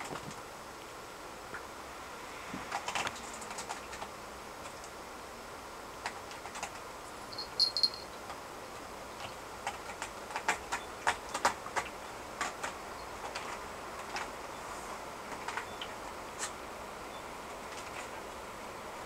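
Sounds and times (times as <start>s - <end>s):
kitten claws clicking and scratching: 6.0s - 8.0s, 9.2s - 14.3s.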